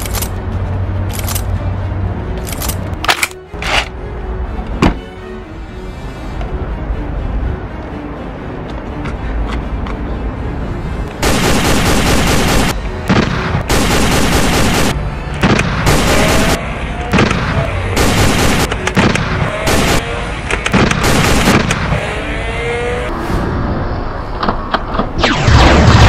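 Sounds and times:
automatic gunfire bursts: 11.2 - 12.7, 13.7 - 14.9, 18.0 - 20.0
single sharp gunshots: 25.2 - 26.0.

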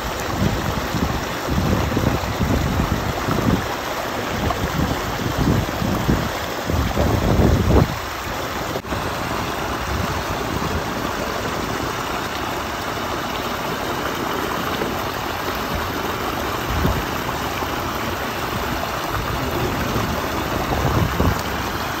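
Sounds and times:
water rushing over weir: 0.0 - 22.0
brief low rumbles: 19.2 - 21.8.

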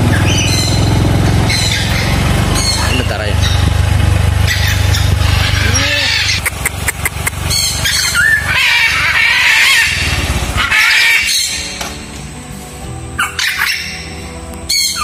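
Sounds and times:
low rumble: 0.0 - 13.0
parrots squawking: 0.1 - 0.8, 1.4 - 3.8, 4.4 - 11.8, 13.2 - 14.1, 14.7 - 15.0.

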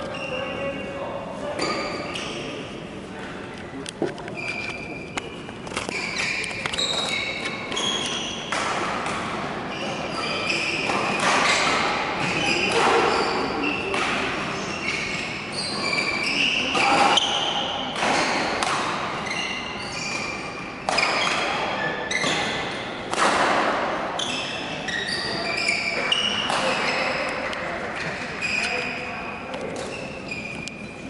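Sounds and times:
shoe squeaks on court floor: 0.0 - 2.8, 4.2 - 8.5, 9.7 - 18.5, 19.1 - 22.9, 24.2 - 31.0
racket striking shuttlecock: 17.9 - 19.1.

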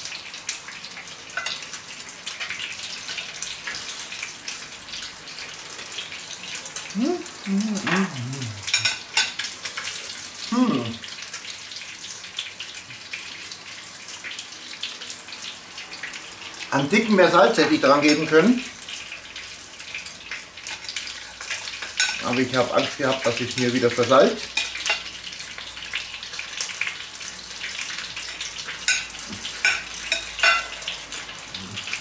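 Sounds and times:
meat patties sizzling in a pan: 0.0 - 32.0
man humming: 6.9 - 8.8, 10.5 - 11.0, 31.5 - 32.0.

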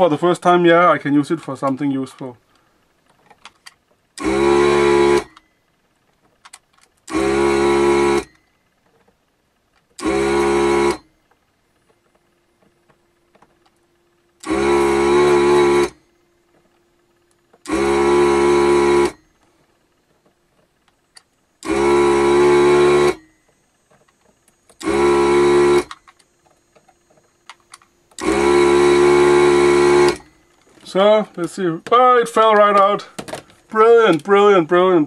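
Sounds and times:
faint steady hum: 0.0 - 35.0
vacuum pump bursts: 4.1 - 5.5, 7.0 - 8.4, 10.0 - 11.1, 14.3 - 16.1, 17.5 - 19.3, 21.6 - 35.0.

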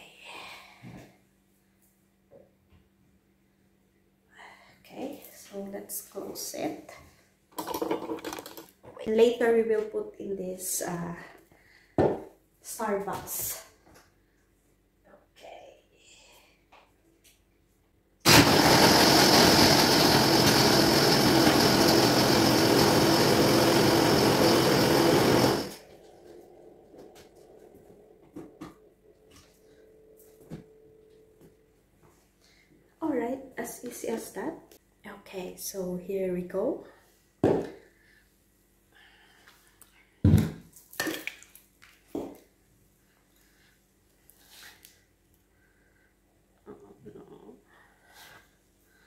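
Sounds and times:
blender blending ice: 18.3 - 25.9.

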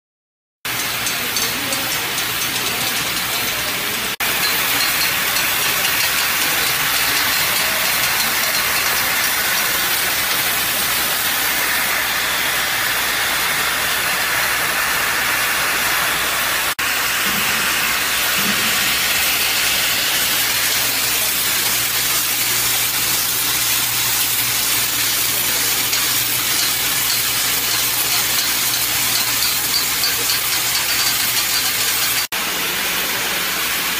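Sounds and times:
cap assembly machine clatter: 0.7 - 11.6, 18.4 - 32.3.

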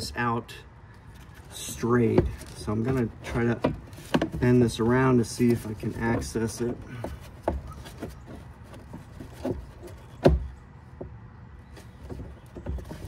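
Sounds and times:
knocks and clicks of speaker box: 6.1 - 11.2.

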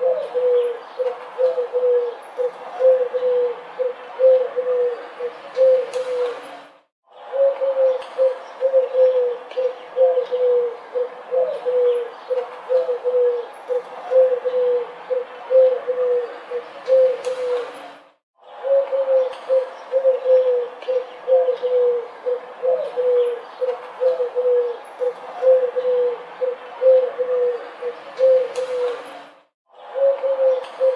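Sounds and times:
pigeons cooing: 0.0 - 6.5, 7.2 - 17.8, 18.5 - 29.2, 29.8 - 30.9.

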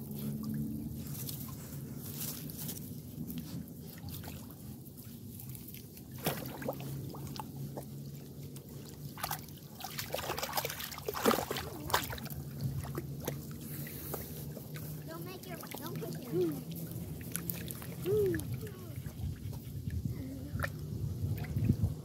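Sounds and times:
dog splashing in shallow water: 0.0 - 19.7, 20.5 - 22.0
grass rustling: 0.1 - 6.2.

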